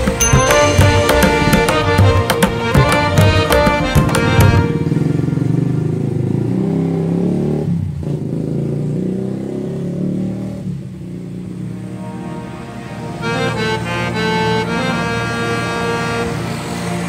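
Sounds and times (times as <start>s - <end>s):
low instrumental music: 0.0s - 5.6s, 11.6s - 17.0s.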